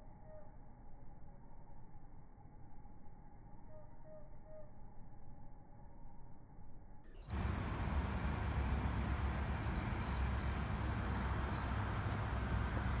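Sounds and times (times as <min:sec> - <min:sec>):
insects chirping: 0:07.3 - 0:13.0.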